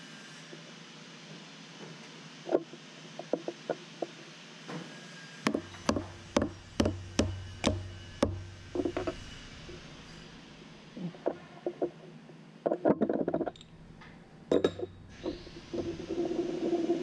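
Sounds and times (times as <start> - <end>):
mallet tapping on steel: 5.5 - 8.5.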